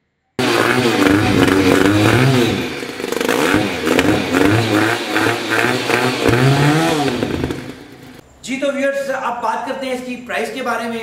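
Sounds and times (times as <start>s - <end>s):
motorcycle engine revving: 0.4s - 8.2s.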